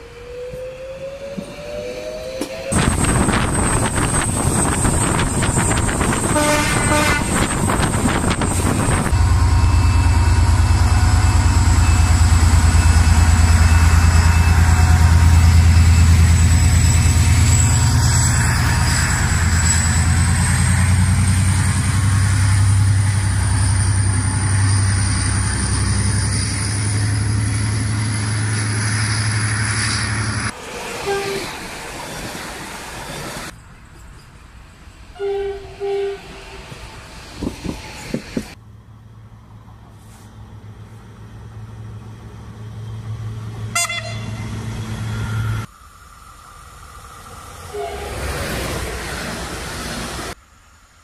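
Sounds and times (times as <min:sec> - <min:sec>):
high engine whine: 0:00.0 - 0:30.8, 0:36.3 - 0:50.9
diesel locomotive engine drone: 0:00.0 - 0:51.0
train horn blast: 0:06.2 - 0:07.6, 0:31.0 - 0:31.5, 0:35.2 - 0:36.7, 0:43.7 - 0:44.6, 0:47.7 - 0:48.4
train wheels clicking: 0:37.2 - 0:38.6.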